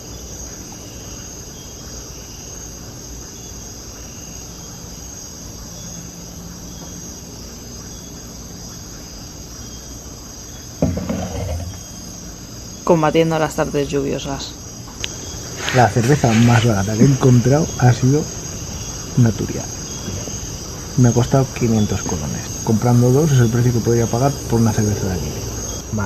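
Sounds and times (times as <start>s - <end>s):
crickets trilling: 0.0s - 26.0s
can set down on wooden table: 10.8s - 12.0s.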